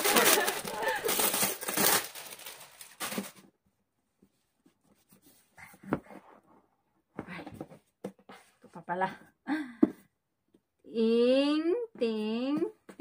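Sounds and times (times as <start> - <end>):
wrapping paper rustling and crinkling: 0.0 - 3.5.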